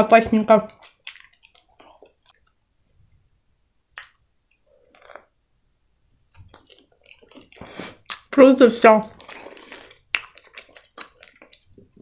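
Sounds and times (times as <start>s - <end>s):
soft squishy chewing: 0.6s - 3.1s, 3.8s - 8.3s, 9.1s - 12.0s
wet mouth click: 3.8s - 4.7s.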